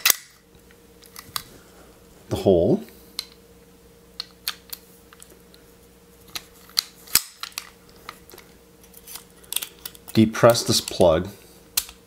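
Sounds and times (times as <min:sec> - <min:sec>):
metal clicks of pistol parts: 0:00.0 - 0:00.3.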